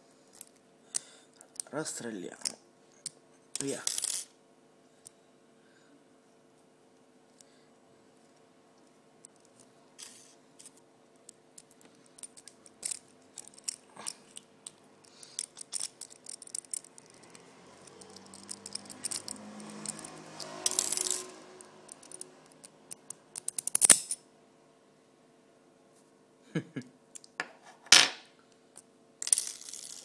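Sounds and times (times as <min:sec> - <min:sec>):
lock picking metallic clicks: 0:11.6 - 0:21.3, 0:21.9 - 0:24.2
metal scraping inside padlock: 0:12.1 - 0:22.7.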